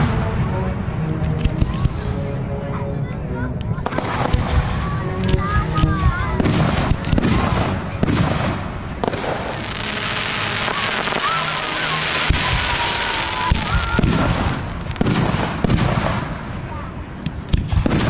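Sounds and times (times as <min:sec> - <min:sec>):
crackling hiss of fireworks: 0:00.0 - 0:02.2, 0:03.8 - 0:18.0
fireworks booms: 0:03.8 - 0:16.7, 0:17.3 - 0:18.0.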